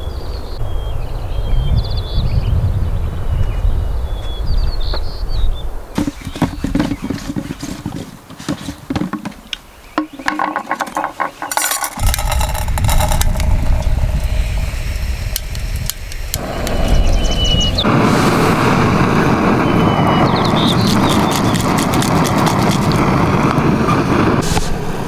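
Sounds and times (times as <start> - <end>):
wind rumbling on microphone: 0.0 - 8.3, 8.9 - 25.0
camp gear clicks and clinks: 6.0 - 13.8, 20.8 - 23.0.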